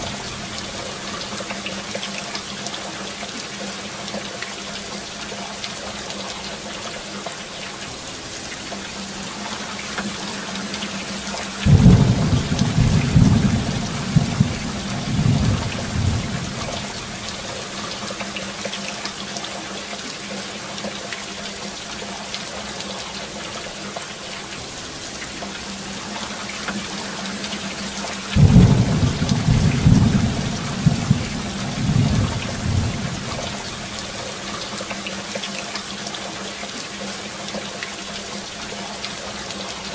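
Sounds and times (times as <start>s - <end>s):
heavy rain: 0.0s - 39.9s
thunder rumbling: 11.6s - 17.5s, 28.4s - 34.2s.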